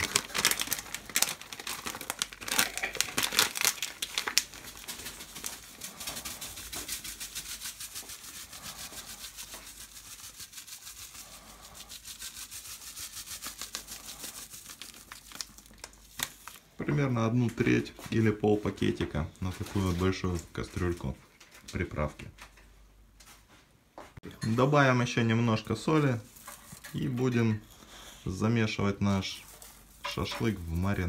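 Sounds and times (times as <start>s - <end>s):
dry seasoning pouring out: 0.0s - 16.6s
packet crinkling: 0.0s - 16.7s.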